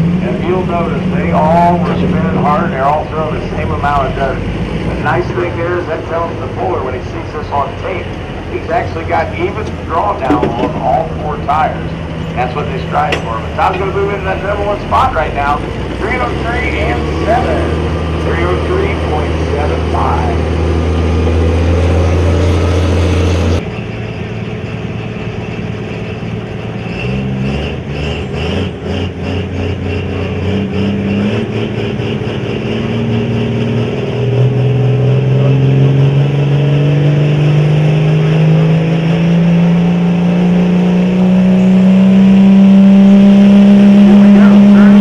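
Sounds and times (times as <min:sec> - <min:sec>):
diesel truck engine under load: 0:00.0 - 0:45.0.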